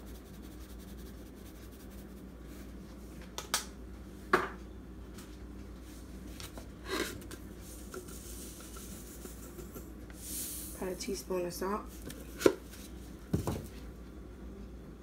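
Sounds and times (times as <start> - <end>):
low steady hum: 0.0 - 15.0
pepper shaker taps and rattles: 7.9 - 10.0.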